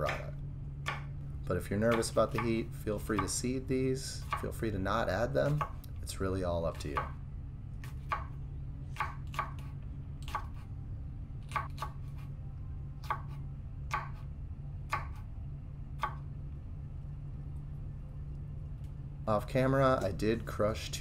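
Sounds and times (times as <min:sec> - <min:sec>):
low hum: 0:00.0 - 0:21.0
knife tapping cutting board: 0:01.9 - 0:03.4.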